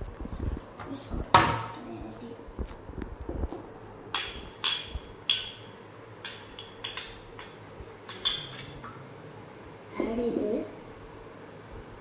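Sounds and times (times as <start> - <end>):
utensil clinking against bowl: 4.2 - 8.8.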